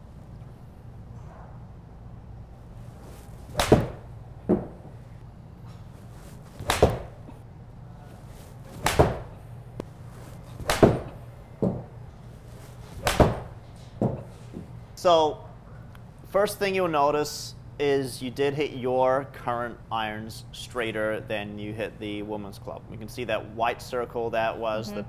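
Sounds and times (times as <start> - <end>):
ball knocking screen: 3.5 - 4.8, 6.6 - 7.1, 8.8 - 9.3, 10.6 - 11.8
golf club striking ball: 3.5 - 4.8, 6.6 - 7.2, 8.8 - 9.3, 10.6 - 11.2, 13.0 - 13.6.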